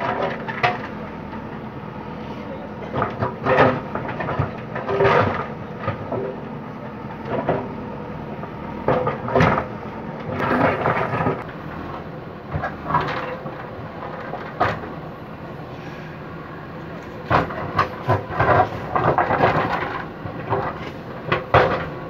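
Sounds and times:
diesel engine running under load: 0.0 - 22.0
bucket crunching and scraping rubble: 10.3 - 11.6, 17.1 - 22.0.

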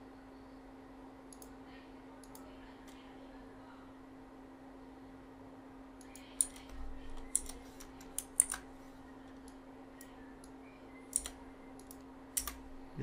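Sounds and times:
faint steady hum: 0.0 - 13.0
computer keyboard keystrokes: 1.3 - 1.5, 6.0 - 8.7, 11.1 - 12.6.

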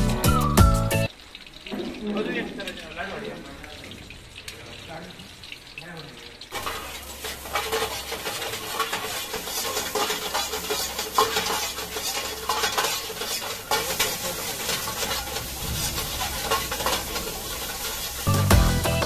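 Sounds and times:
vegetables sizzling in a wok: 0.9 - 19.0
metal ladle scraping a wok: 6.5 - 18.5.

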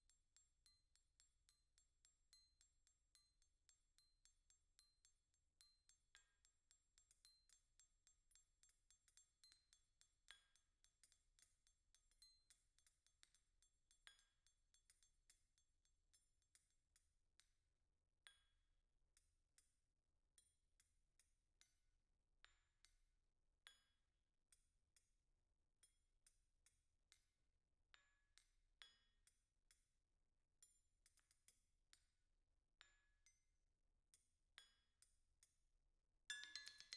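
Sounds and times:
metal spoons struck with mallets: 36.3 - 36.9.

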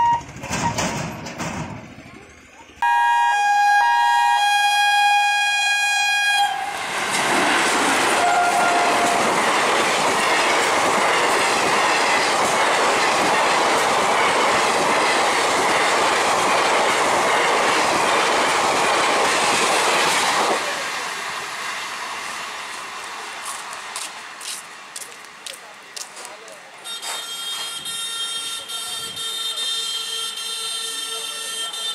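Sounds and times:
train wheels clattering on rails: 0.0 - 2.5, 6.8 - 28.0
train horn blast: 2.8 - 6.8, 8.1 - 9.3, 26.8 - 31.9.

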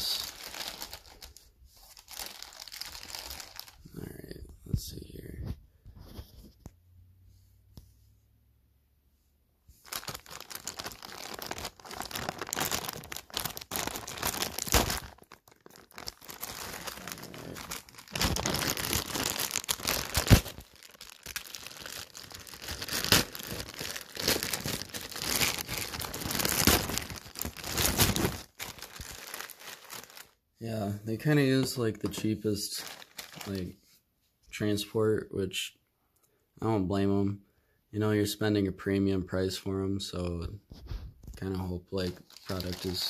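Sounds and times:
plastic bags crinkling and tearing: 0.0 - 3.9, 9.8 - 30.4, 31.6 - 33.7, 42.0 - 43.0.

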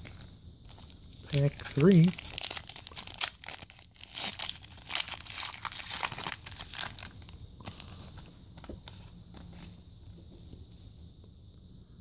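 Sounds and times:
foil wrapper tearing and crinkling: 0.0 - 8.2.

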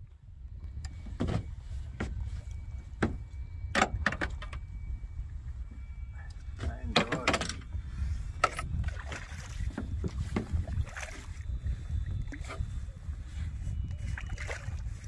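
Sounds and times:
wind rumble on microphone: 0.0 - 15.0
water splashes and knocks: 1.1 - 3.2, 6.6 - 7.6, 8.4 - 11.4.

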